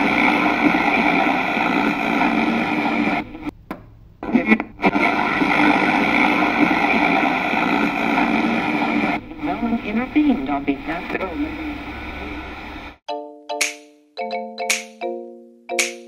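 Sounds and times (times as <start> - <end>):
radio static hiss: 0.0 - 3.6, 4.2 - 13.0.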